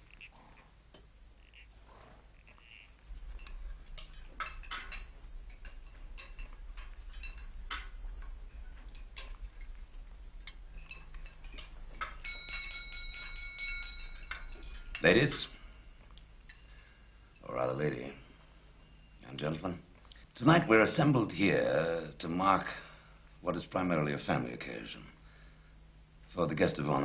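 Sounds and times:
cutlery and glassware clinking: 2.6s - 17.6s
knife tapping glass ringing: 10.8s - 16.9s.

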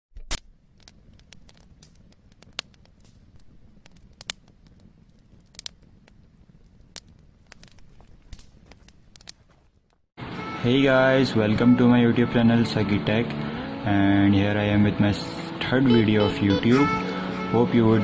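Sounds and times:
crackling clicks and pops: 0.1s - 10.1s.

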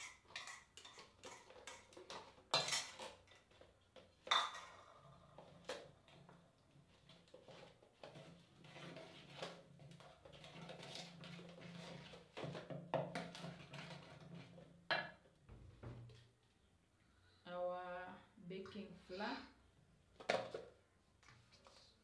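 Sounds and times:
wooden spoon scraping metal pot: 0.0s - 4.7s, 5.3s - 14.8s.

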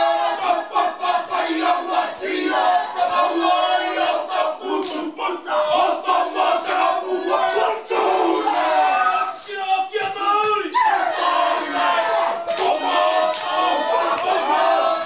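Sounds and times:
men chanting in unison: 0.0s - 15.0s
hand slaps on bodies: 4.8s - 5.1s, 10.0s - 10.6s.

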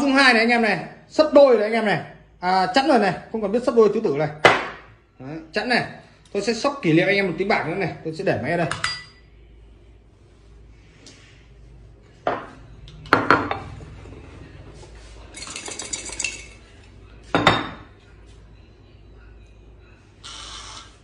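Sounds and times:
ceramic bowl clinking on plate: 8.7s - 9.2s, 17.2s - 17.9s.

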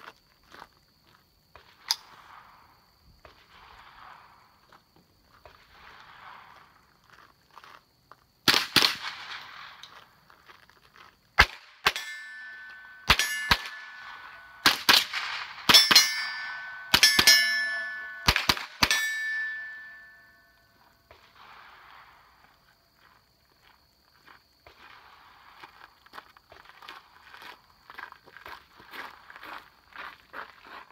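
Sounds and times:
rifle shots: 8.5s - 9.8s, 11.4s - 20.2s
steel targets ringing: 11.8s - 20.8s.

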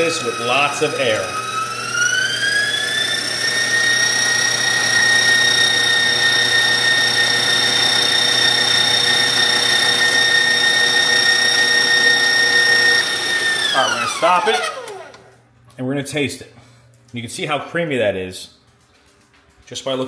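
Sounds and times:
stand mixer motor whining: 0.0s - 15.4s.

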